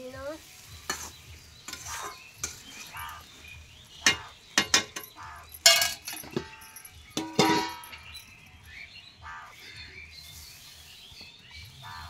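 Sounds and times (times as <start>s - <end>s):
metal spatula clinking in pan: 1.7s - 2.9s, 4.0s - 8.3s.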